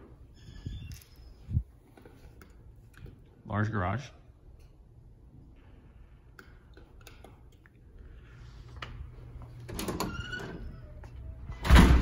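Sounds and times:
door squeak: 0:00.3 - 0:01.4, 0:09.7 - 0:12.0.

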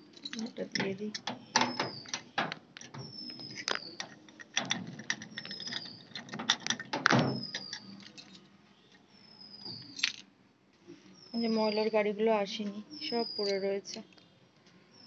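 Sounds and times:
objects being handled clicking: 0:00.1 - 0:09.0.

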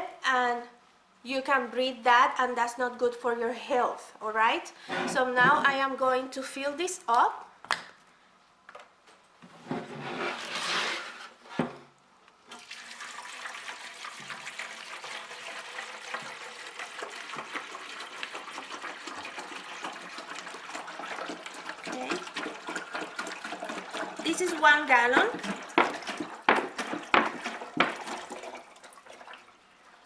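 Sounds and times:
water pouring into a tank: 0:12.5 - 0:30.0.

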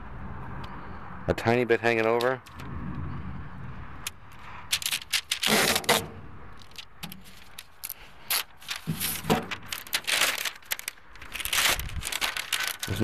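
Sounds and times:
paper rustling and crinkling: 0:04.7 - 0:13.0.

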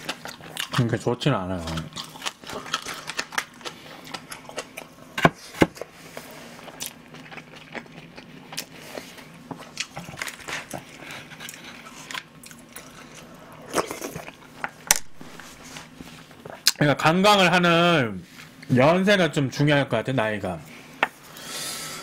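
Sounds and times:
person chewing food: 0:00.0 - 0:16.8.

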